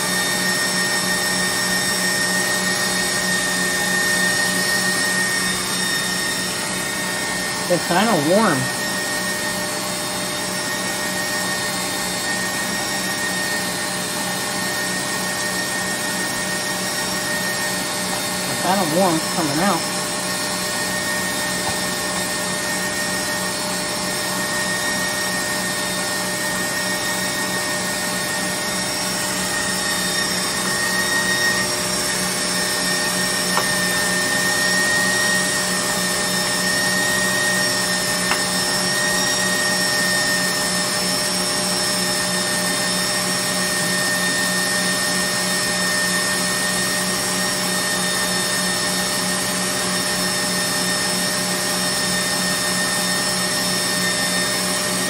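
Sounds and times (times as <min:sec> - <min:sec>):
stand mixer motor humming and whining: 0:00.0 - 0:55.0.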